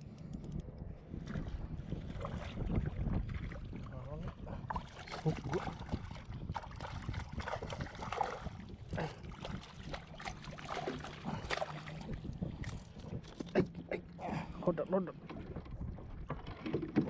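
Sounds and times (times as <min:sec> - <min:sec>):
water sloshing around kayak: 0:01.1 - 0:17.0
knocks against hull: 0:15.2 - 0:17.0.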